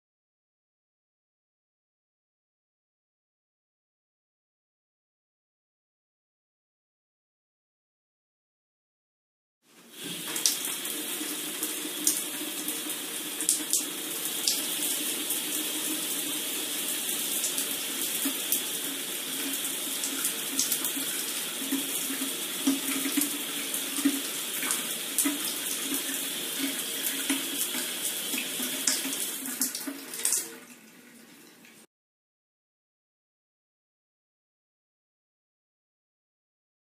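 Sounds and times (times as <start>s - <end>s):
shower water spraying: 9.8s - 30.7s.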